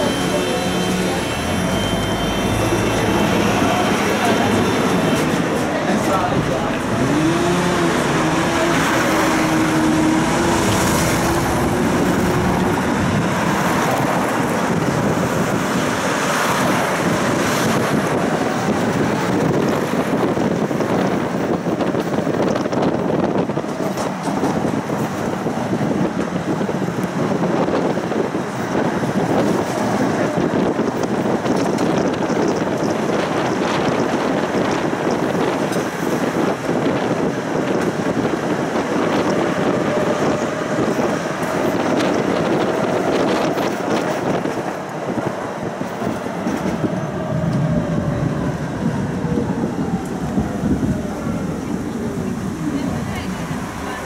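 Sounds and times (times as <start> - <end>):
tram wheels rumbling on rails: 0.0 - 54.0.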